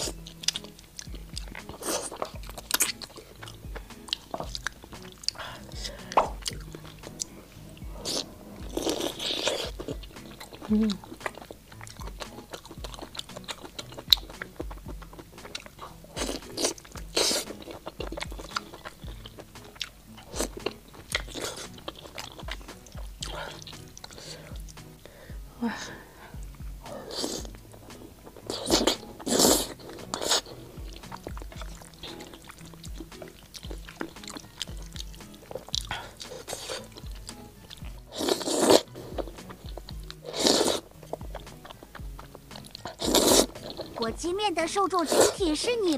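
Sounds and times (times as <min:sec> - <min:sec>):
person chewing wet food: 0:00.0 - 0:44.2
background music with steady beat: 0:00.0 - 0:45.9
person slurping noodles: 0:01.4 - 0:07.0, 0:07.9 - 0:22.4, 0:26.9 - 0:37.1, 0:37.9 - 0:44.0, 0:45.0 - 0:45.4.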